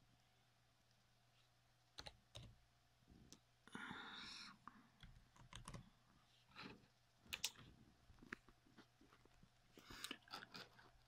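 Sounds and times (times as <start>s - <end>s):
laptop keys typing: 1.9s - 2.6s, 5.0s - 5.9s.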